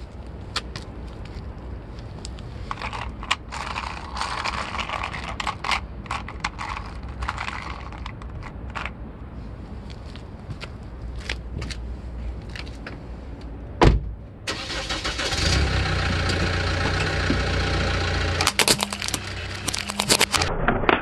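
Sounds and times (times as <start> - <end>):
plastic toy truck scraping on asphalt: 2.3 - 9.0, 17.4 - 20.5
low steady rumble: 15.5 - 21.0.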